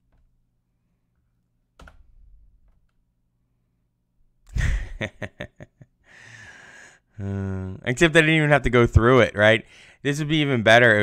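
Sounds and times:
man laughing breathily: 4.5 - 7.7.

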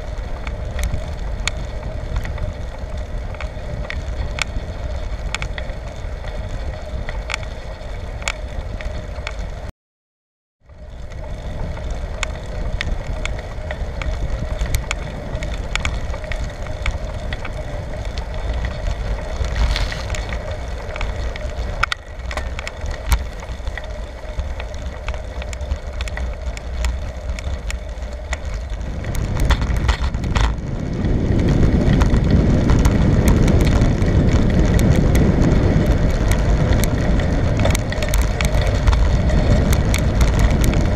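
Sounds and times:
bicycle clicks and rattles: 0.0 - 9.7, 10.7 - 40.9
tyre and road rumble: 0.0 - 9.7, 10.6 - 40.9
wind buffeting microphone: 0.0 - 9.7, 10.7 - 40.9.

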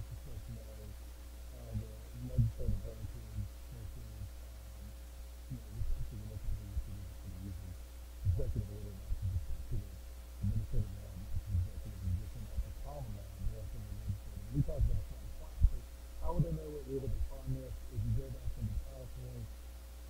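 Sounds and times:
low electrical hum: 0.0 - 20.0
muffled low thumps: 1.5 - 4.4, 5.5 - 19.5.

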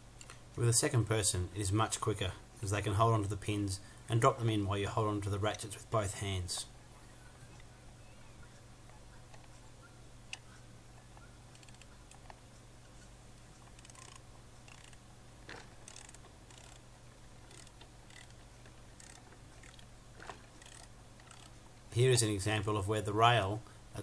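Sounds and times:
steady low hum: 0.0 - 24.0
ratchets clicking: 13.7 - 15.0, 15.6 - 16.8, 17.5 - 18.4, 19.0 - 19.8, 20.6 - 21.6.

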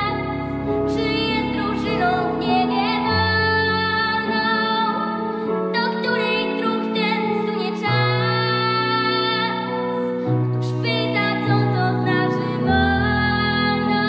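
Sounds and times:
girl singing: 0.0 - 9.9, 10.6 - 14.0
instrumental backing track: 0.0 - 14.0.

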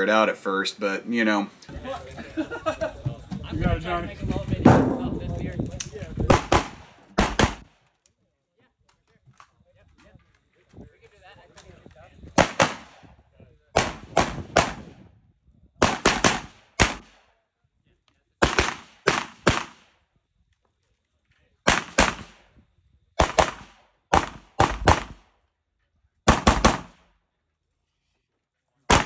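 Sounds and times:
rifle shots: 6.3 - 7.8, 12.4 - 13.1, 13.8 - 14.9, 15.8 - 17.2, 18.4 - 19.9, 21.7 - 22.5, 23.2 - 25.3, 26.3 - 27.1.

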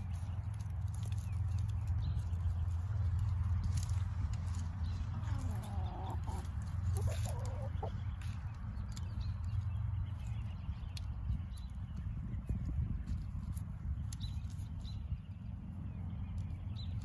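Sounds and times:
hens clucking: 4.4 - 9.0.

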